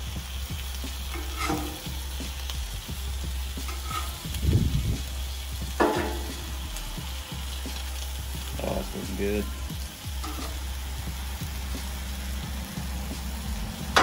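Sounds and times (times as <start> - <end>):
ham sizzling on a griddle: 0.0 - 14.0
metal spatula scraping: 1.0 - 2.0, 3.5 - 4.4, 5.8 - 6.6, 10.2 - 10.8.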